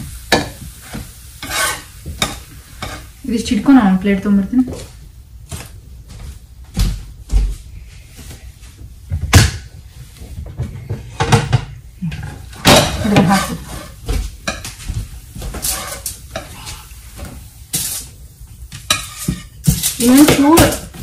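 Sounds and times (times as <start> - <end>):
light sizzling from pan: 0.0 - 6.6, 8.2 - 21.0
metal spatula tapping and scraping: 1.4 - 3.1, 18.7 - 20.8.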